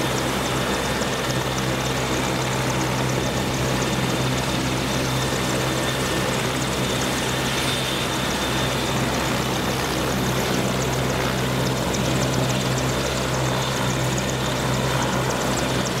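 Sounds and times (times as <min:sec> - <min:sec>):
helicopter engines and rotor running: 0:00.0 - 0:16.0.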